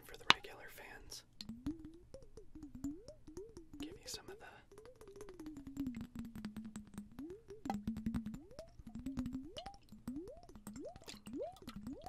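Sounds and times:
rapid drip-like clicks: 0.0s - 12.0s
water sloshing in a jar: 8.4s - 12.0s.

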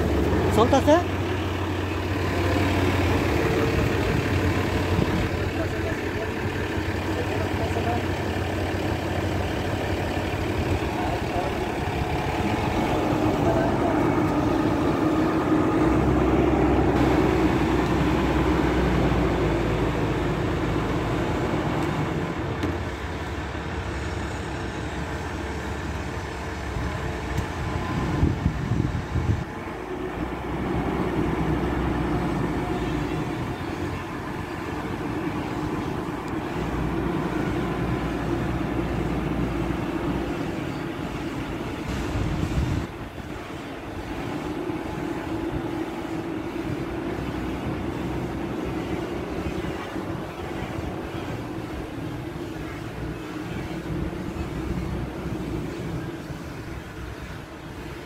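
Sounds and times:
forklift engine running: 0.0s - 58.0s.

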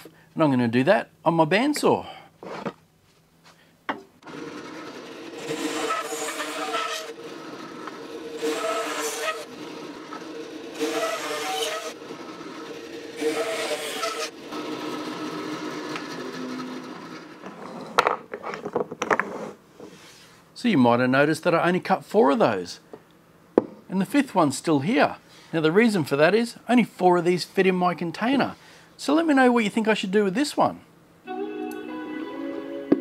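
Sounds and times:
bandsaw blade cutting material: 4.2s - 17.3s
bandsaw humming: 4.2s - 17.4s.

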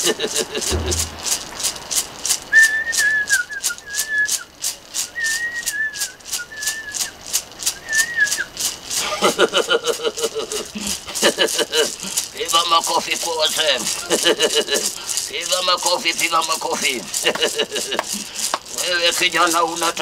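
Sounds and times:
gourd rattle shaken: 0.0s - 20.0s
whistled tune: 2.5s - 7.1s, 7.7s - 8.5s.

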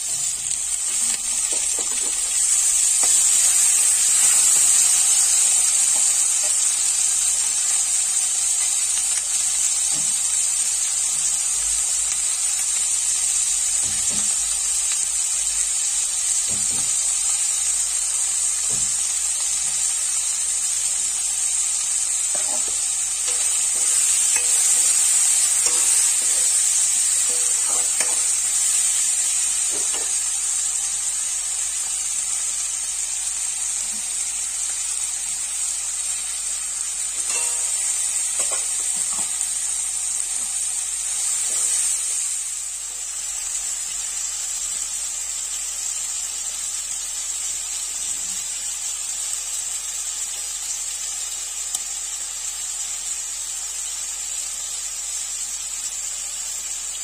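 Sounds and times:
vegetables sizzling in a pan: 0.0s - 57.0s
spoon knocking on pan: 1.4s - 2.3s, 22.3s - 28.9s, 29.6s - 30.2s, 37.2s - 39.4s.

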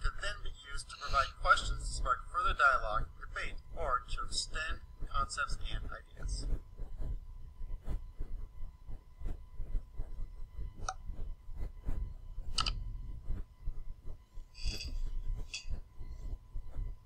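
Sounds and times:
low rumble: 0.5s - 17.0s
mouse clicks: 12.5s - 12.8s.

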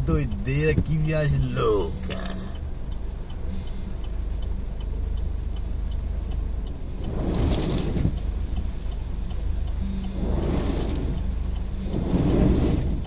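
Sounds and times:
engine and road rumble: 0.0s - 13.0s
heavy rain on car: 0.0s - 13.0s
rushing swish: 11.8s - 13.0s.

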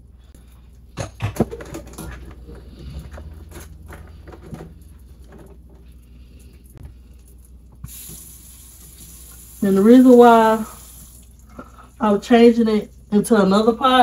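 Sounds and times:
butter sizzling in a frying pan: 7.8s - 11.4s.

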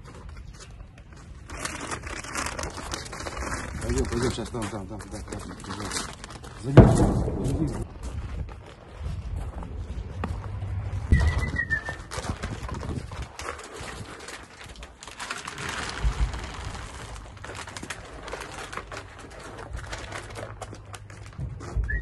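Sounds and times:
bump: 6.6s - 13.1s
dry dog food pouring: 11.4s - 20.8s.

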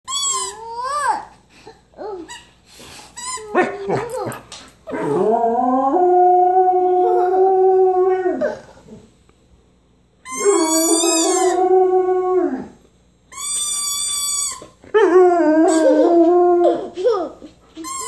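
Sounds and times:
dog howling: 10.3s - 12.8s.

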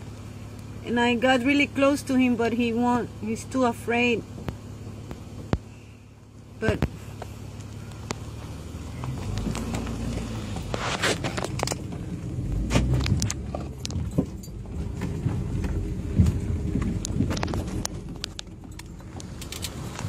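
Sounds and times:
footsteps on gravel: 7.2s - 11.9s
wind rumble: 7.9s - 20.0s.

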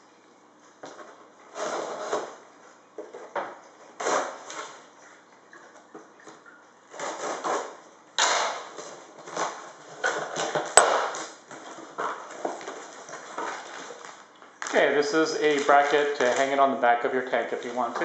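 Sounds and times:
cardboard scraping and rustling: 0.9s - 2.4s.

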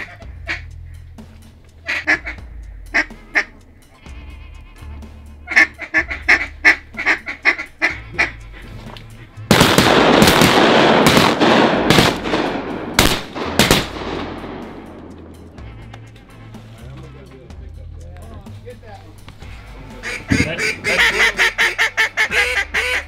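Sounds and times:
ducks quacking: 0.0s - 0.9s, 1.8s - 9.6s, 15.5s - 17.0s, 19.5s - 23.0s
shotgun blasts: 9.5s - 14.8s.

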